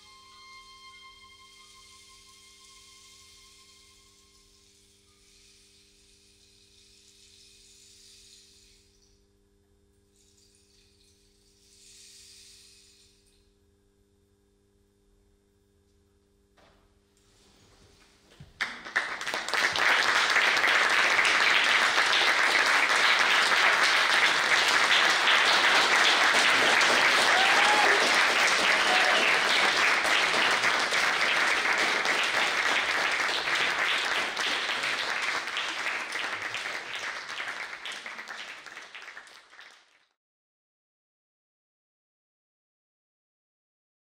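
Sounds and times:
audience applause: 0:18.5 - 0:40.1.

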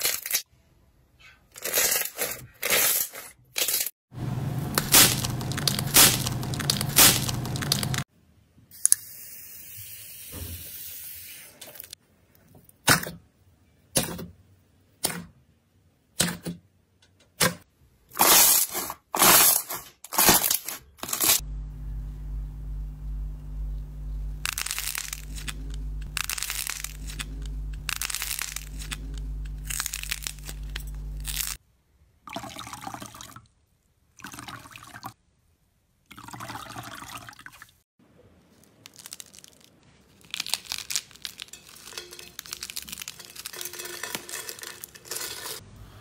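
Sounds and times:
low steady hum: 0:21.4 - 0:31.6.

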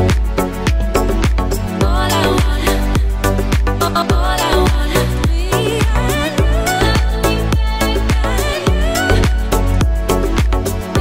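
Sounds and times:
dance music with pitch-bending lead: 0:00.0 - 0:11.0.

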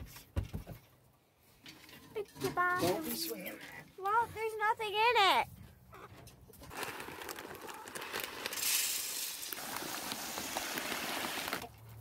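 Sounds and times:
pellets pattering on metal: 0:06.6 - 0:11.7.

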